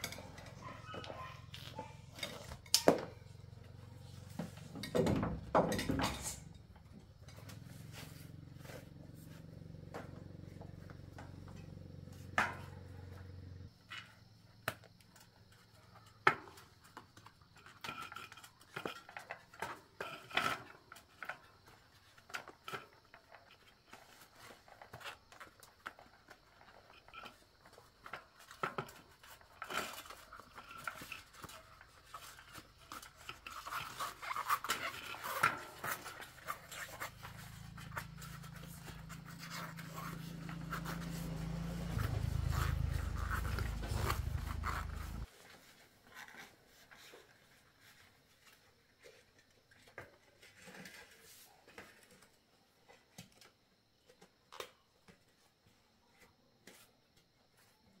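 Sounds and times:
bicycle tyre scraping on rim: 0:33.4 - 0:45.3.

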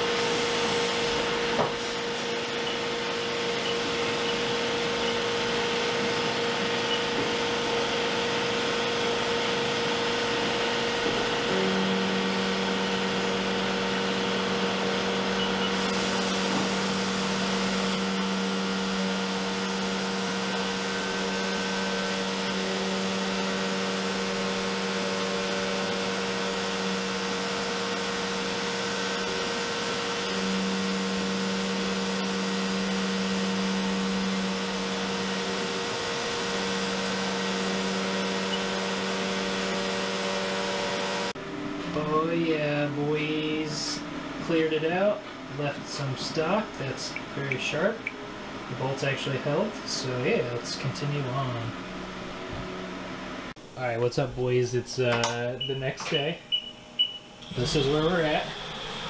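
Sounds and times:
coolant spray rushing: 0:15.8 - 0:28.8.

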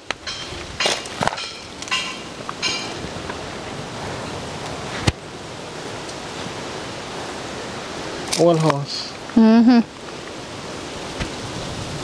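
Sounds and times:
wind on microphone: 0:09.7 - 0:12.0.

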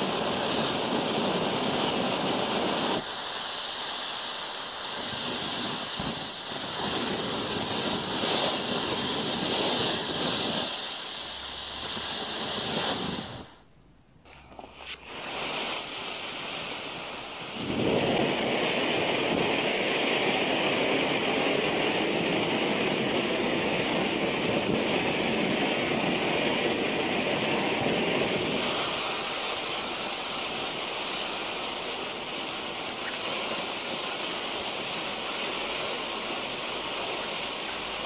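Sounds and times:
firework fountain hissing: 0:00.0 - 0:38.0.

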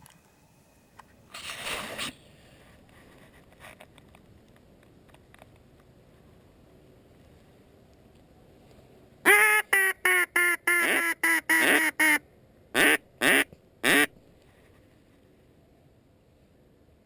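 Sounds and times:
duck call quacking: 0:09.2 - 0:12.2, 0:12.8 - 0:14.1.

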